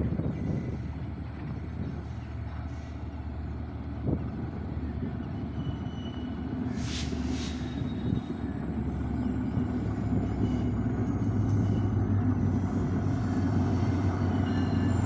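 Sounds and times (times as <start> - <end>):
diesel locomotive engine drone: 0.0 - 15.0
short hisses: 6.7 - 7.7.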